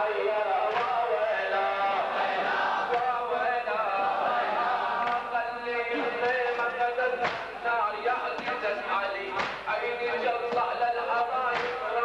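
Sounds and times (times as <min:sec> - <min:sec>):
men chanting: 0:00.0 - 0:12.0
crowd beating chests: 0:04.4 - 0:12.0.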